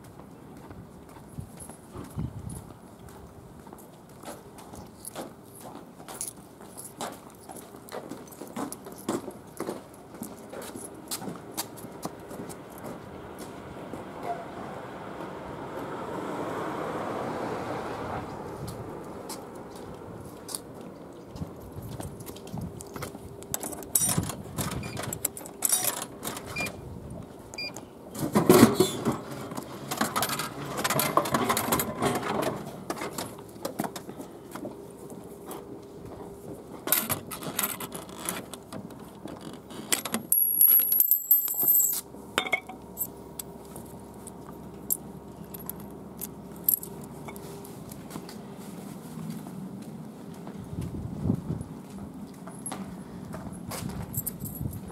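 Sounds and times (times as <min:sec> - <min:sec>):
coins clinking into machine: 0:40.3 - 0:42.7.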